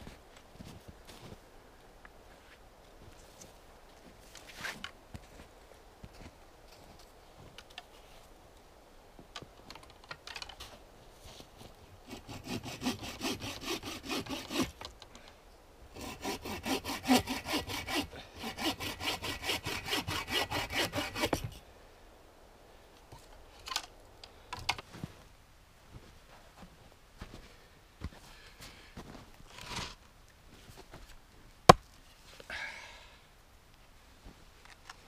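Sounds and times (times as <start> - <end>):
hand saw cutting wood: 12.0 - 14.8, 15.9 - 21.6.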